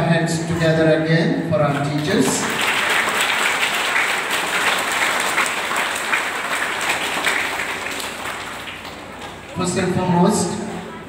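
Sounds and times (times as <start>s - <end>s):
audience applauding: 1.7s - 9.6s.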